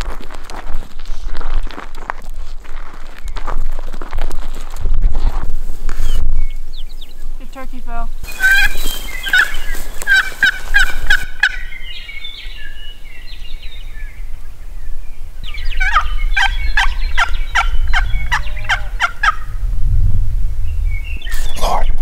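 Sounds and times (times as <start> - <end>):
wild turkeys calling: 8.2 - 13.1, 15.4 - 19.5.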